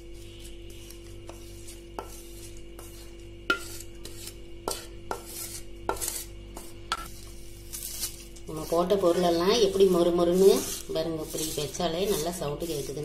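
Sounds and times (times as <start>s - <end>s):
faint steady hum: 0.0s - 13.0s
spoon scraping metal pan: 0.2s - 7.1s, 7.7s - 13.0s.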